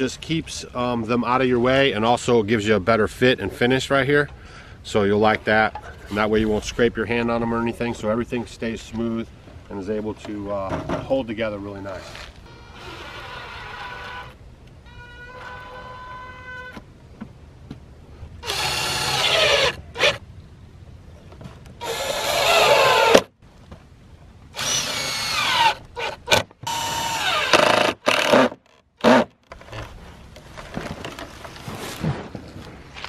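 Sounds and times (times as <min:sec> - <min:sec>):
drill driving screws: 0:18.4 - 0:20.2, 0:21.8 - 0:23.3, 0:24.6 - 0:29.3
handling wooden boards: 0:29.4 - 0:33.0.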